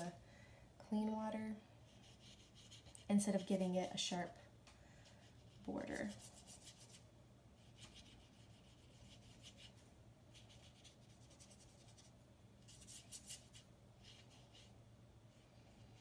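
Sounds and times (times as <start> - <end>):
paintbrush swishing on paper: 1.9 - 3.6, 5.1 - 7.0, 7.6 - 16.0.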